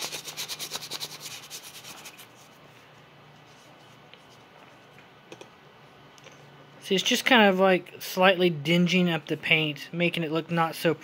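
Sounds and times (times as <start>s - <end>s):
sandpaper rubbing: 0.0s - 2.5s.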